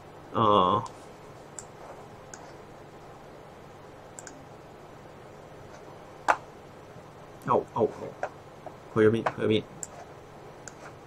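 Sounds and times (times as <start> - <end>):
low steady room hiss: 0.0 - 11.0
computer mouse clicking: 4.2 - 4.4, 10.6 - 10.9.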